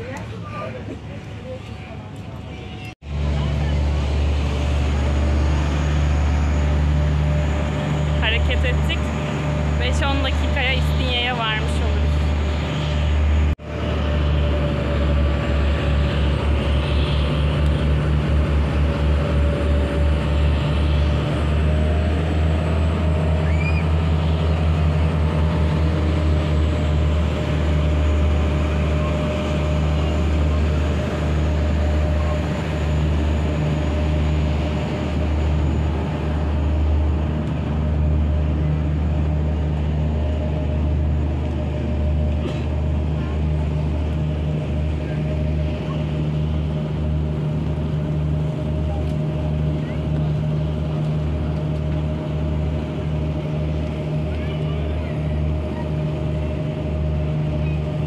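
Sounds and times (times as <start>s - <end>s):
ship engines droning: 0.0s - 58.0s
wind and water rushing: 3.0s - 48.5s.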